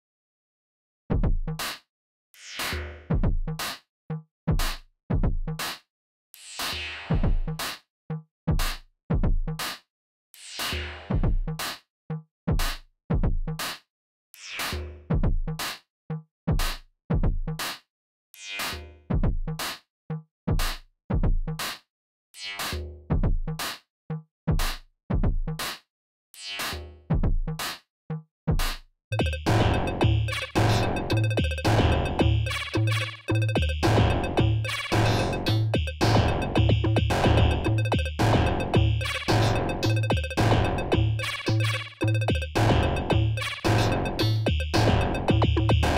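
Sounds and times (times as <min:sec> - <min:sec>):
electronic beat of kick and click hits: 0:29.1 - 0:45.9.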